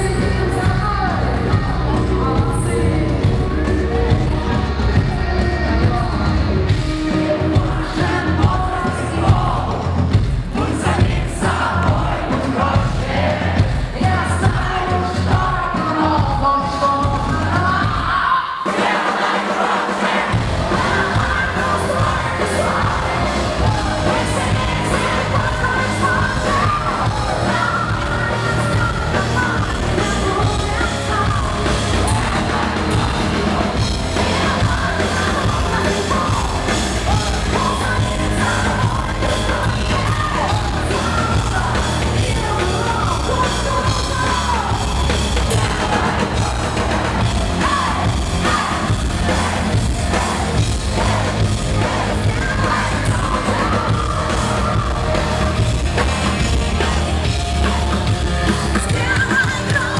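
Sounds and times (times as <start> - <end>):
bass guitar: 0.0 - 18.3, 20.2 - 59.9
drums: 0.0 - 59.9
distorted electric guitar: 20.2 - 59.9
person singing and shouting: 20.2 - 59.9.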